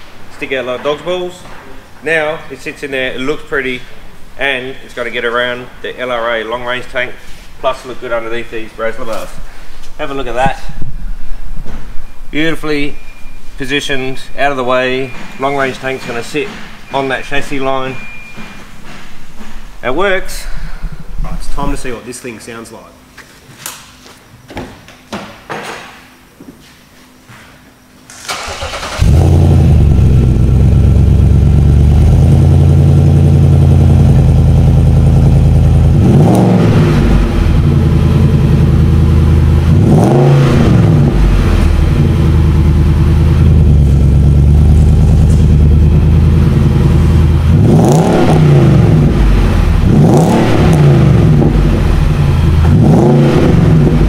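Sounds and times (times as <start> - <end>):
car engine starting: 28.1 - 54.0
engine revving: 28.3 - 54.0.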